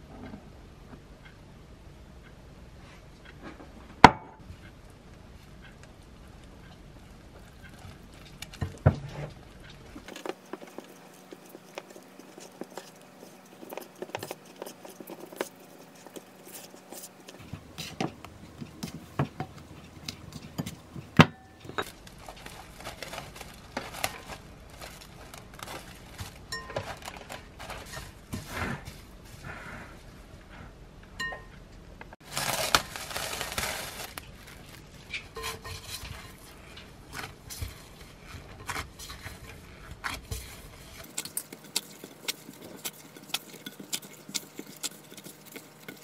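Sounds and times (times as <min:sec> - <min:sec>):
spatula scraping glass bowl: 0:35.3 - 0:36.6.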